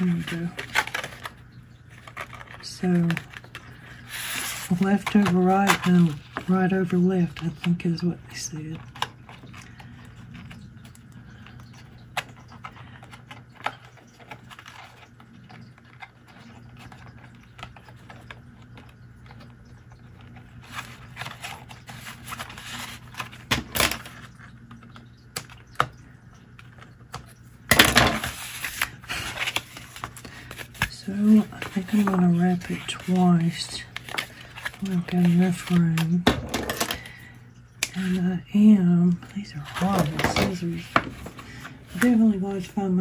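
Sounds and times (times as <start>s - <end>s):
twine and paper rustling: 0.0s - 43.0s.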